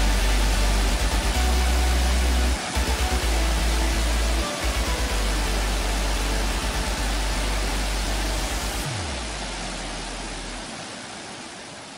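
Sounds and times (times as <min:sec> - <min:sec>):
rushing water: 0:00.0 - 0:11.9
wind: 0:07.4 - 0:11.9.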